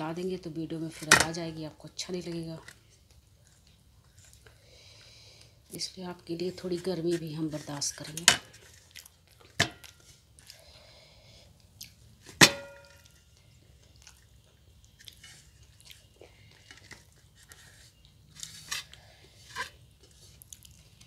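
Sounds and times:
quiet chewing: 2.6s - 5.5s, 8.6s - 12.1s, 13.0s - 21.0s.

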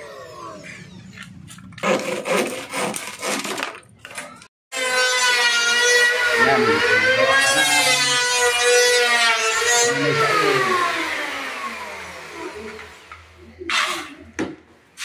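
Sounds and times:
handsaw cutting plywood: 1.8s - 3.7s, 4.8s - 12.8s
electric planer whining: 4.8s - 13.9s.

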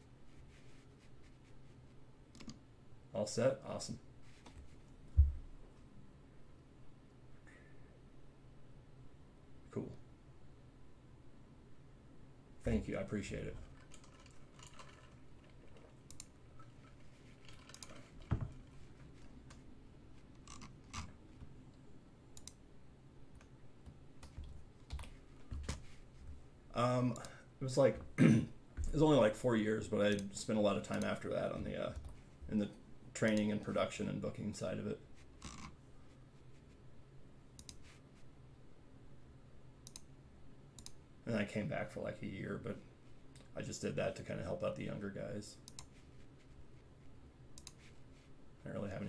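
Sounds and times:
low steady hum: 0.0s - 49.0s
computer mouse clicks: 2.3s - 2.6s, 13.8s - 16.7s, 17.4s - 18.1s, 22.4s - 22.6s, 37.6s - 37.9s, 39.8s - 40.1s, 40.8s - 41.0s, 45.6s - 46.0s, 47.6s - 48.0s
faint clicks: 16.0s - 16.7s, 22.4s - 22.6s, 37.6s - 37.8s, 39.8s - 40.1s, 40.8s - 41.0s, 45.6s - 46.0s, 47.6s - 47.9s.

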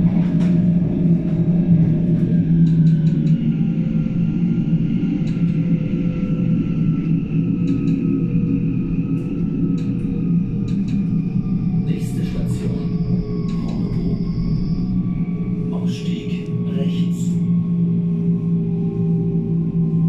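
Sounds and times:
train interior rumble: 0.0s - 20.0s
light clicks: 10.7s - 11.1s.

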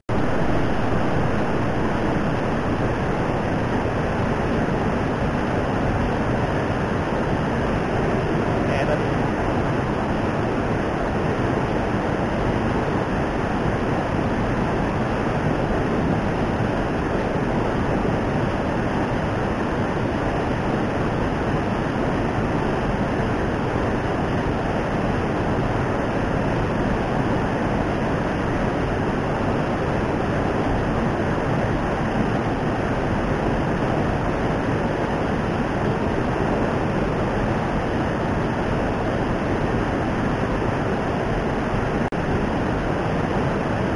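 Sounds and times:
fast-flowing water rushing: 0.1s - 43.9s.

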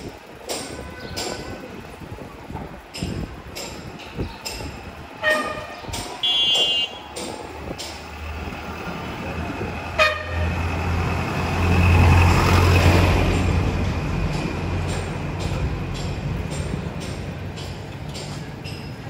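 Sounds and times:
high-pitched car horn toot: 5.2s - 7.0s
vehicle engine passing close: 8.3s - 15.3s.

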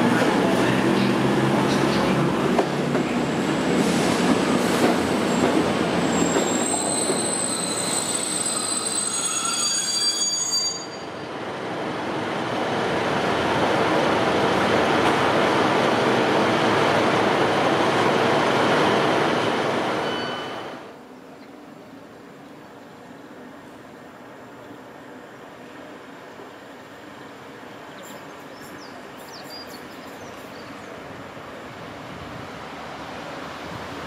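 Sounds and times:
passenger train running: 0.0s - 34.0s
train wheel squeal: 5.3s - 11.3s, 20.0s - 20.8s.

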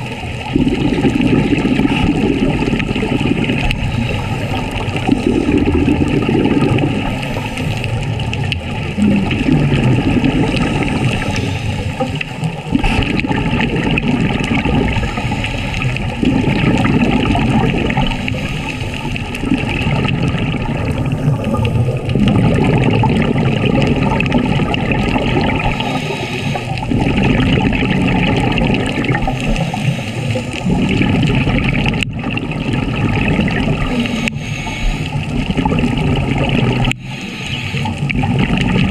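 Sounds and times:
bubbles gurgling underwater: 0.0s - 38.9s
steady watery hiss: 0.0s - 38.9s
diver breathing through regulator: 0.9s - 8.1s, 9.1s - 13.6s, 14.8s - 19.7s, 25.5s - 27.4s, 28.8s - 31.2s, 33.8s - 35.8s, 36.8s - 38.9s.

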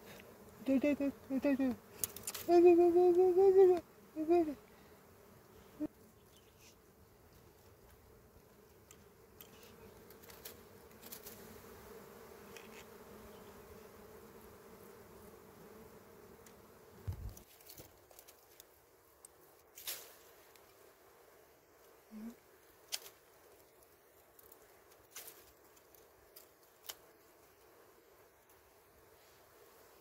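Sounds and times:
bees buzzing: 0.0s - 17.5s.

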